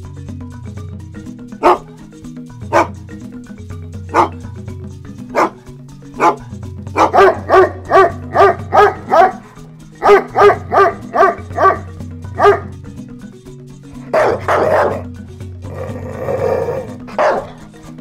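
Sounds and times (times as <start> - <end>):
background music with bass line: 0.0 - 18.0
dog barking: 1.6 - 1.9, 2.7 - 3.0, 4.1 - 4.4, 5.3 - 5.6, 6.2 - 6.4, 7.0 - 11.8, 12.4 - 12.7, 14.1 - 15.1, 17.1 - 17.6.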